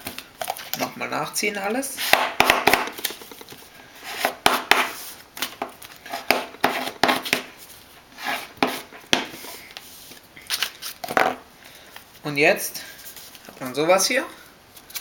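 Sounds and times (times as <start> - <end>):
plastic object scraping paper folds: 2.9 - 7.2.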